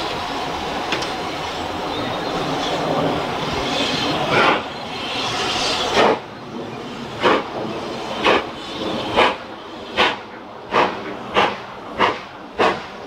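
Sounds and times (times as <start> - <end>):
hiss of steam: 0.0 - 6.3, 7.0 - 13.0
steam locomotive exhaust chuffs: 2.8 - 6.3, 7.1 - 13.0.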